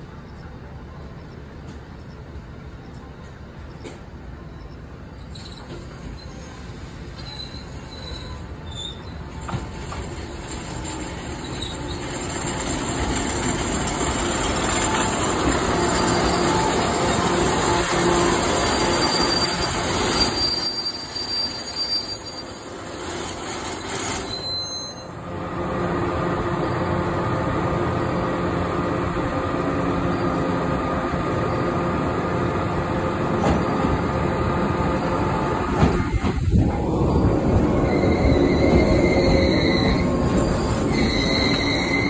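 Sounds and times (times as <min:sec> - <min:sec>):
electric train running: 0:09.4 - 0:20.4.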